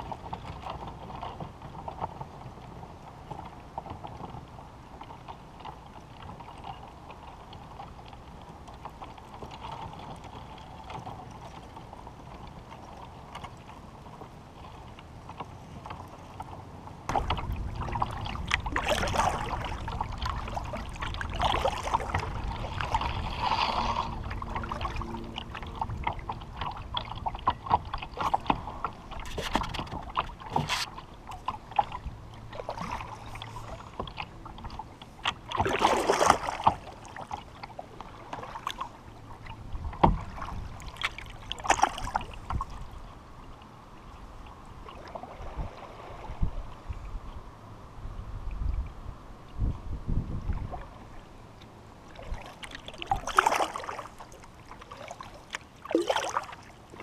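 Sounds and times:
paddle strokes splashing: 0.0 - 47.1, 50.5 - 57.0
water lapping against plastic hull: 0.0 - 57.0
low wind rumble on microphone: 10.9 - 37.2, 37.8 - 52.4.

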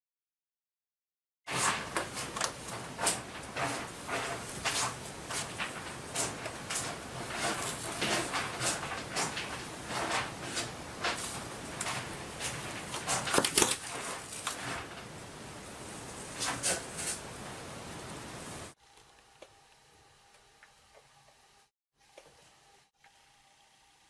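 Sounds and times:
cats scrabbling on cat tree: 1.5 - 15.2.

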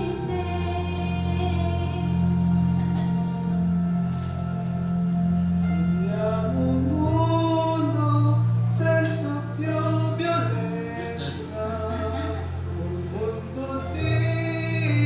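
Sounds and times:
music backing track: 0.0 - 15.0
man singing: 6.0 - 15.0.

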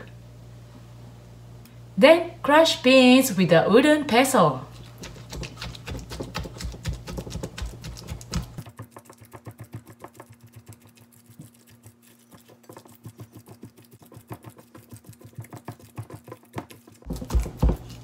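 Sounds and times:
pestle crushing beans in strainer: 4.7 - 18.0.

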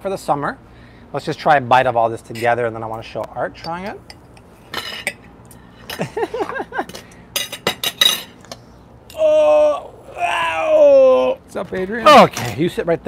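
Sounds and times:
cutlery clinking on plate: 6.9 - 8.6.

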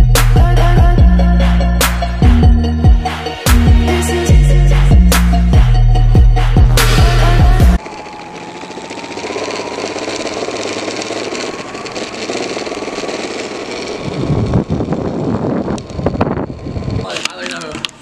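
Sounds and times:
longboard wheels rolling on asphalt: 7.8 - 18.0.

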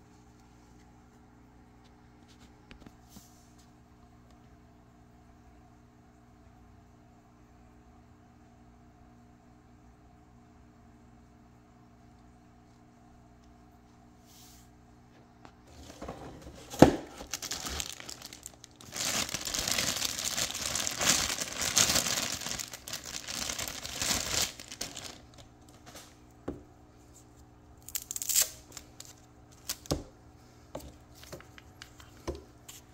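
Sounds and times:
plastic bag crinkling: 15.7 - 26.2, 27.8 - 29.9.

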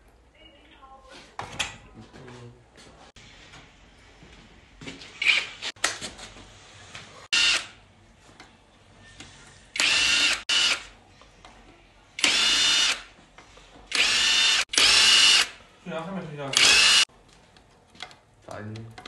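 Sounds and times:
cordless drill motor whining: 7.3 - 7.6, 9.8 - 10.8, 12.2 - 13.0, 13.9 - 15.5, 16.5 - 17.0.

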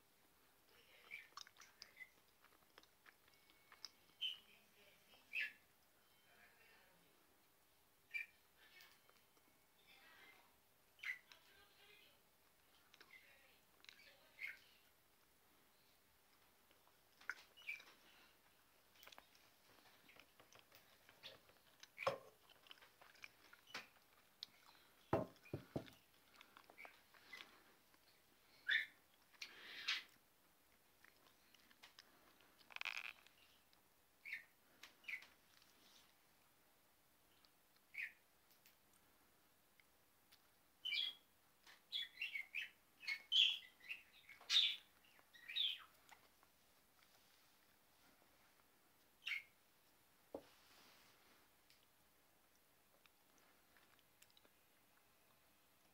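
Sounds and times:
budgerigar chirping and chattering: 34.2 - 35.2, 40.8 - 41.2, 49.2 - 49.5.

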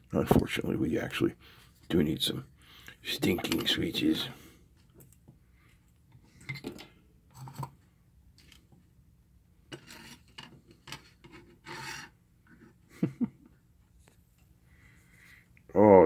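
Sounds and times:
hands scraping parts on wooden bench: 9.7 - 12.8.

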